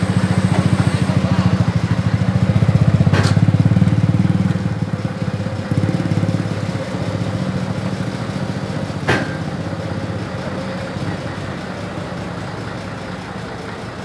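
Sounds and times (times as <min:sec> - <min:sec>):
diesel engine throbbing: 0:00.0 - 0:14.0
sharp metallic knocks: 0:09.0 - 0:09.8.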